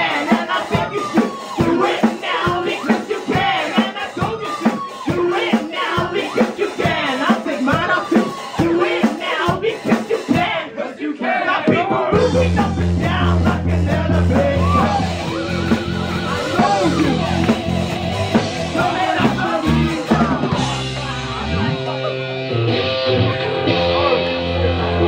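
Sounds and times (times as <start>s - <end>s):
rock music with singing: 0.0s - 25.0s
bass line: 12.1s - 25.0s.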